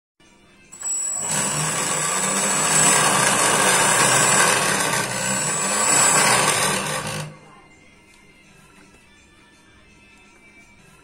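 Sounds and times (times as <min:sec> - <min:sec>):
electric jet engine motor whining: 0:00.8 - 0:07.4.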